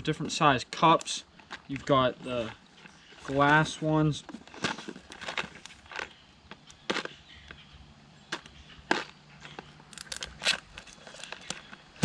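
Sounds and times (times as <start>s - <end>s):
plastic bag crinkling: 1.3s - 7.2s.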